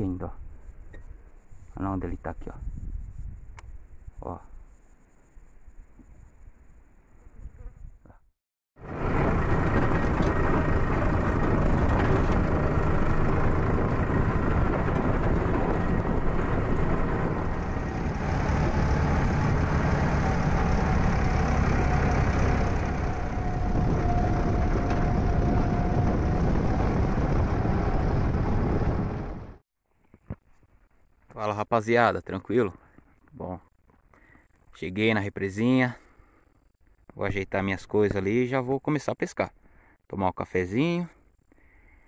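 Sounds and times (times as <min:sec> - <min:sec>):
thin whine: 0:08.8 - 0:29.4
tractor engine running: 0:08.8 - 0:29.6.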